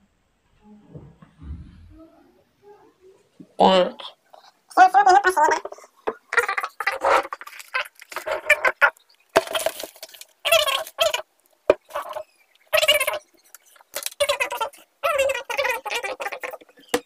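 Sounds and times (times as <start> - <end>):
boy making vocal sounds: 14.2 - 16.6.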